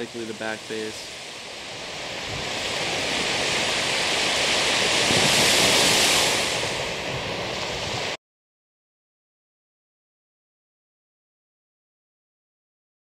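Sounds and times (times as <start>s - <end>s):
small waves breaking on beach: 0.0s - 8.2s.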